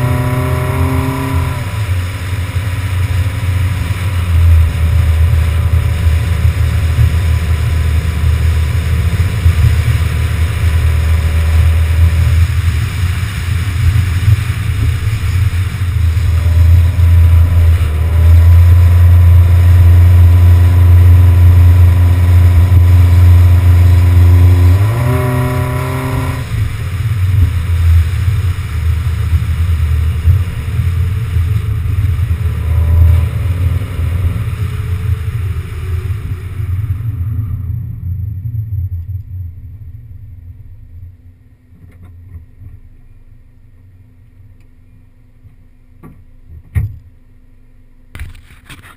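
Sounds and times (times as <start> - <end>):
car engine: 0.0 - 48.9
wind and road noise: 0.0 - 48.9.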